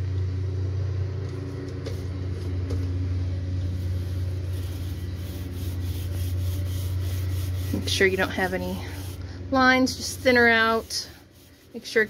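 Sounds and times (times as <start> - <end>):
steady low hum: 0.0 - 12.0
paint roller rubbing: 3.6 - 12.0.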